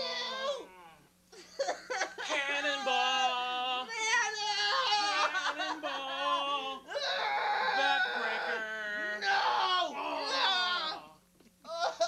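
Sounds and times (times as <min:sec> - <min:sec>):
people yelling and wailing: 0:02.3 - 0:11.1.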